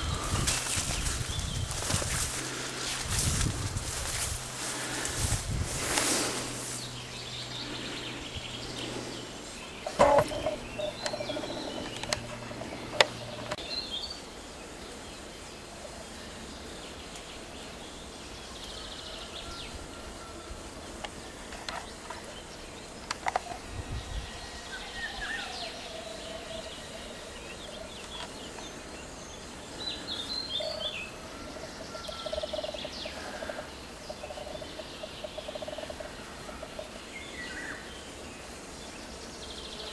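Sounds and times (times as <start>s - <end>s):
high bird chirps: 9.8s - 13.6s
low wavering bird call: 9.8s - 13.6s.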